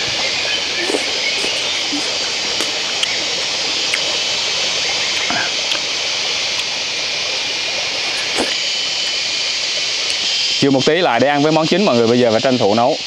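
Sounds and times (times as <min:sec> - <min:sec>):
stream rushing: 0:00.0 - 0:10.9
person chewing greens: 0:00.2 - 0:04.3, 0:05.0 - 0:05.9, 0:08.0 - 0:08.7.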